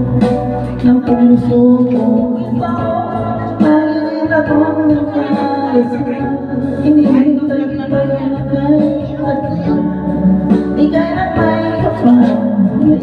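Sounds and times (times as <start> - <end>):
backing music: 0.0 - 13.0
man singing into microphone: 0.8 - 13.0.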